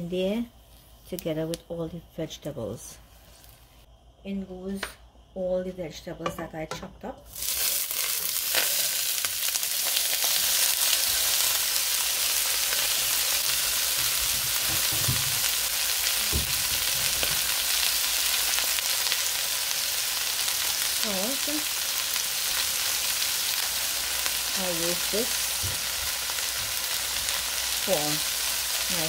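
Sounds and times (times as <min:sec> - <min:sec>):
vegetables sizzling in oil: 0:07.3 - 0:29.0.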